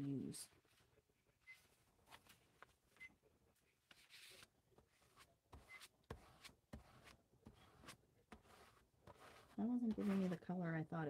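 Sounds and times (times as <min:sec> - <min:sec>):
paper rustling on table: 0:01.6 - 0:02.8, 0:03.8 - 0:10.4.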